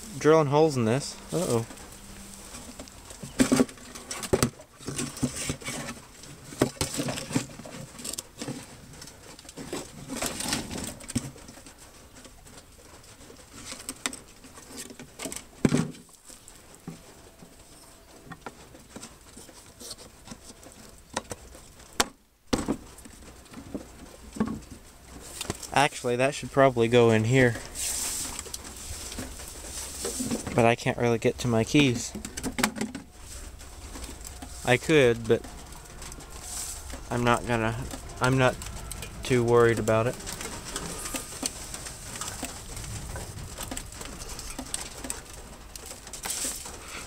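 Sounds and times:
rain pattering: 0:00.0 - 0:04.2, 0:23.0 - 0:47.0
hand rummaging through metal parts: 0:00.0 - 0:22.0, 0:22.6 - 0:47.0.

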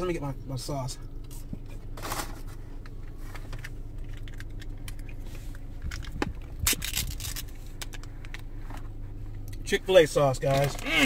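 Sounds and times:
plastic cup crackle: 0:10.4 - 0:11.0.

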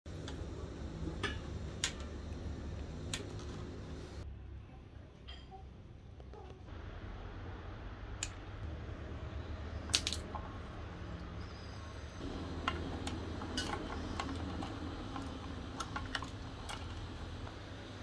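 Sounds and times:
steady low hum: 0:00.1 - 0:05.0, 0:05.9 - 0:18.0
plastic connectors clicking: 0:09.9 - 0:10.3.

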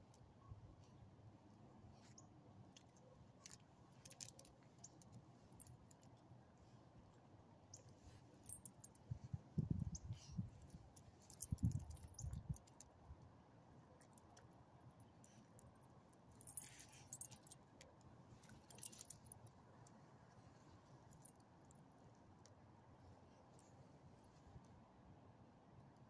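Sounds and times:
dog collar tags jingling: 0:08.5 - 0:09.0, 0:11.3 - 0:12.7, 0:16.4 - 0:17.6, 0:18.4 - 0:19.3.

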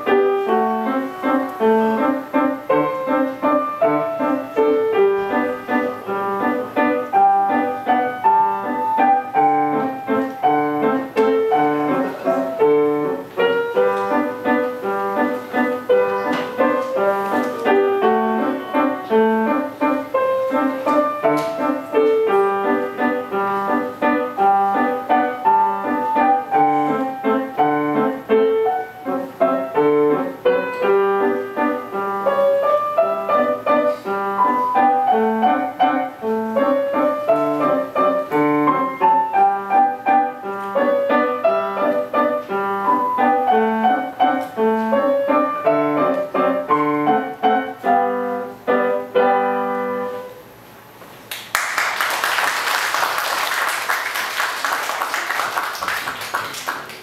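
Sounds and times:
solo grand piano piece: 0:00.0 - 0:57.0
audience applauding: 0:51.3 - 0:57.0.

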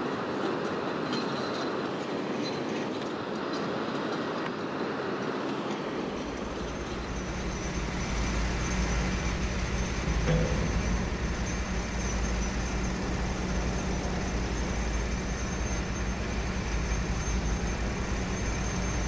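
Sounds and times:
construction machinery rumble and hum: 0:05.9 - 0:19.0.

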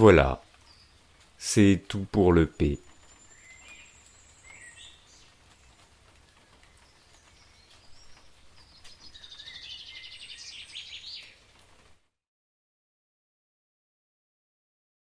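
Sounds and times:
songbirds chirping: 0:00.0 - 0:12.0.

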